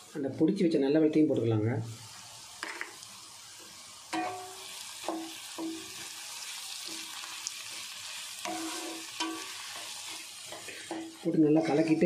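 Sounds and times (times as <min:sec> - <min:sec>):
vegetables sizzling in oil: 0:00.0 - 0:12.0
spatula stirring in pan: 0:04.1 - 0:12.0
pan ringing clang: 0:04.2 - 0:05.9.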